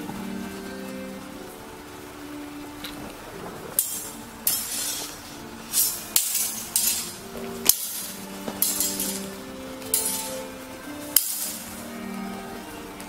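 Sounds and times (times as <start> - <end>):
swords clashing: 3.8 - 10.5, 11.1 - 11.8.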